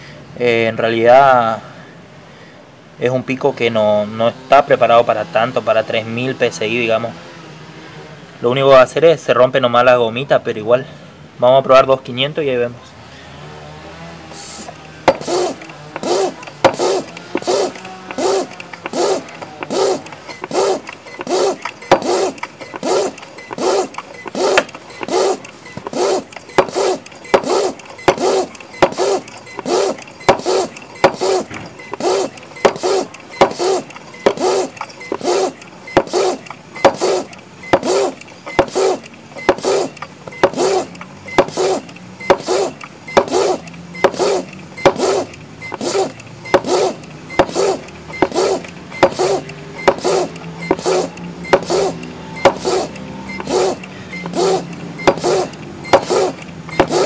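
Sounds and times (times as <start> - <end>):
hand pump air strokes: 14.3 - 57.0.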